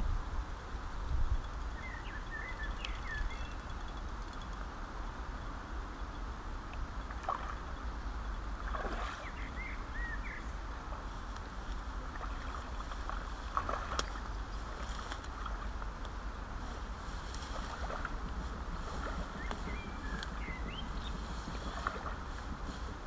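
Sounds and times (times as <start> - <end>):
river water rushing: 7.1 - 16.5.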